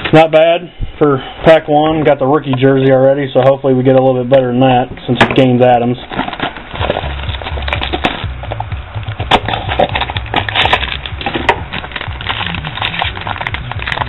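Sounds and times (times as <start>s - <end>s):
foil wrapper crinkling: 5.9s - 14.0s
low hum: 6.6s - 14.0s.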